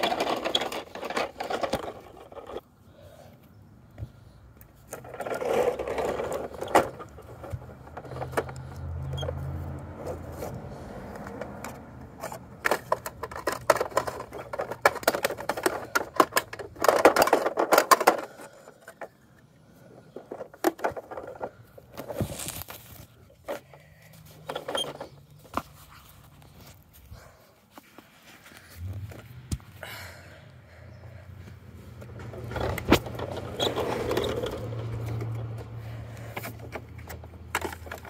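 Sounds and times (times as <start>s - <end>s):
plastic toy parts clicking and rattling: 0.0s - 2.6s, 4.9s - 9.4s, 10.0s - 19.2s, 20.2s - 23.7s, 36.3s - 38.0s.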